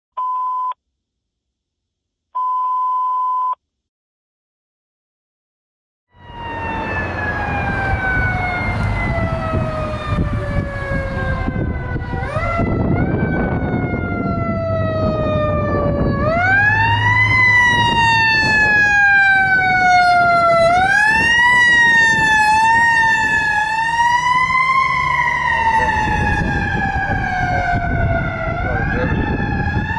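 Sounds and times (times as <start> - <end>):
fire engine siren wailing: 6.1 - 29.9
fire engine running: 6.2 - 29.9.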